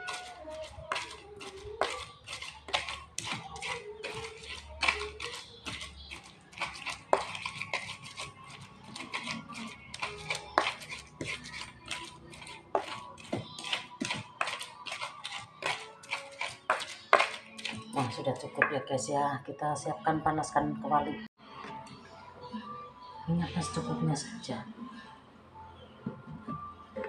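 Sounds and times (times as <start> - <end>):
pestle pounding in mortar: 0.0 - 18.3.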